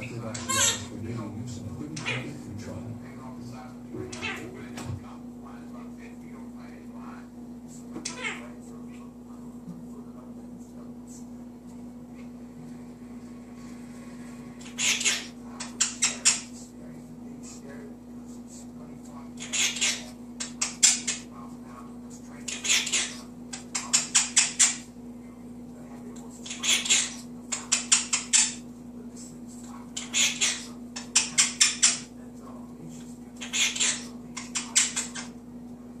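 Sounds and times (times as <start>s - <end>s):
parrot hissing: 14.6s - 16.6s, 30.0s - 32.0s, 33.4s - 35.3s.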